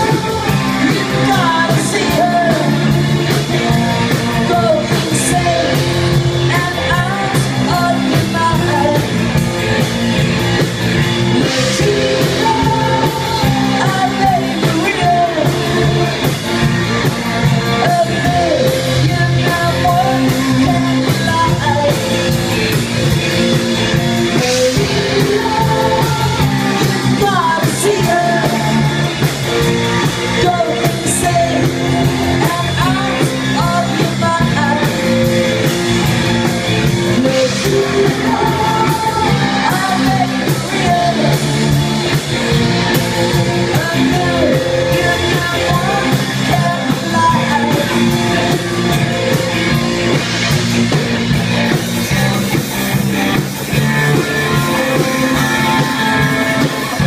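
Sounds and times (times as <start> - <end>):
drum kit: 0.0 - 57.0
electric and acoustic guitars: 0.0 - 57.0
person singing: 0.0 - 57.0.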